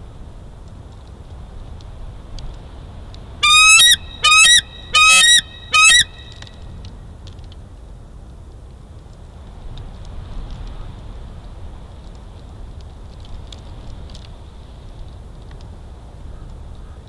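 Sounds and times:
eagle chittering call: 3.4s - 6.5s.

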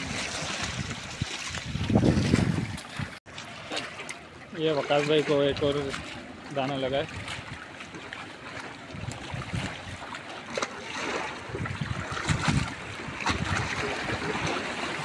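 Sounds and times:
wind on microphone: 0.0s - 3.2s, 8.8s - 10.1s, 11.4s - 15.0s
sea water lapping against rocks: 0.0s - 15.0s.

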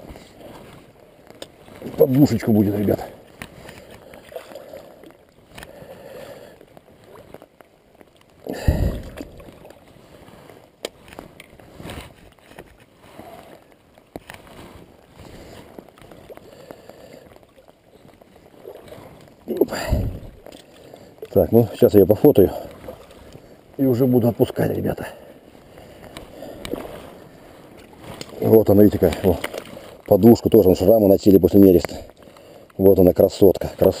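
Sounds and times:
rain: 0.0s - 23.8s
water sloshing: 0.0s - 34.0s.

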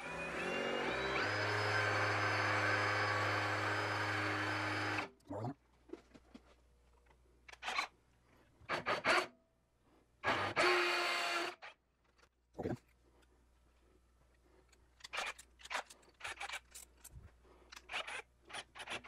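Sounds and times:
power drill boring metal: 0.0s - 5.1s, 8.7s - 9.3s, 10.2s - 11.8s.

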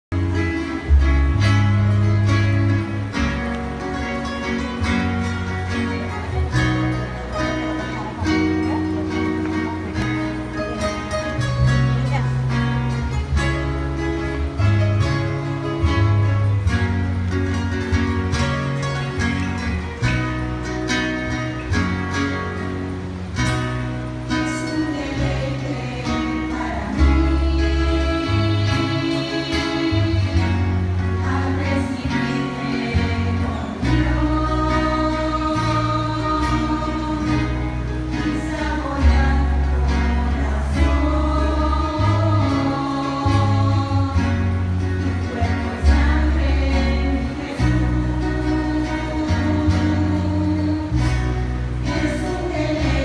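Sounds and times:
guitar and bass playing: 0.1s - 53.0s
choir singing: 24.4s - 53.0s.

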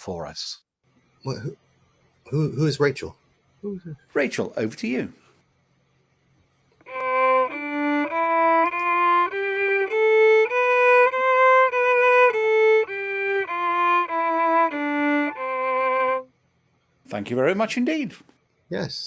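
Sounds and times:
violin bowing a scale: 6.8s - 16.3s.

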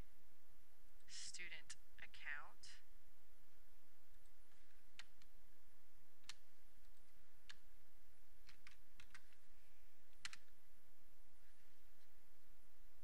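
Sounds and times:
computer mouse clicks: 4.1s - 5.3s, 6.2s - 7.7s, 8.4s - 9.5s, 10.1s - 10.6s
keyboard keys clicking: 4.9s - 5.3s, 8.4s - 9.4s, 10.1s - 10.6s.

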